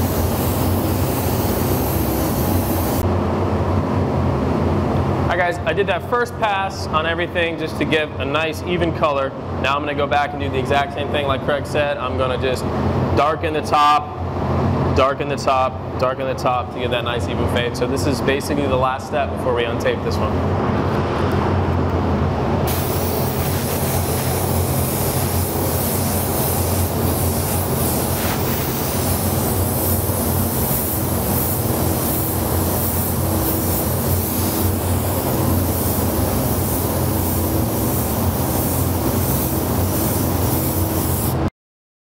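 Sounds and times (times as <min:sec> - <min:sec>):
paint spray gun hissing: 0:00.0 - 0:03.0, 0:22.7 - 0:41.5
steady low hum: 0:00.0 - 0:41.5.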